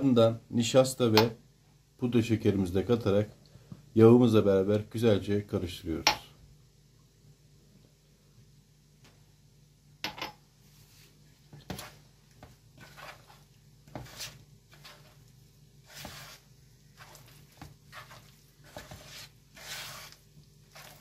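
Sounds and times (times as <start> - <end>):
hand mixing soft dough: 10.5 - 21.0.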